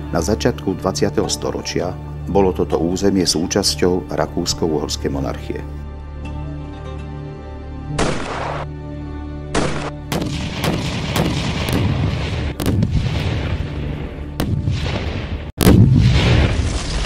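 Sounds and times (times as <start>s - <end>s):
gunshots: 8.0s - 8.7s, 9.5s - 13.8s, 14.4s - 17.0s
heavy shell explosion rumbling: 9.6s - 17.0s.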